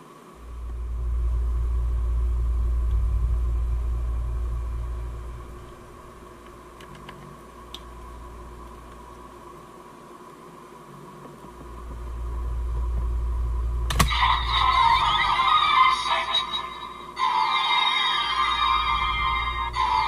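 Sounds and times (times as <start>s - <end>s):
faint steady whine: 0.0s - 20.0s.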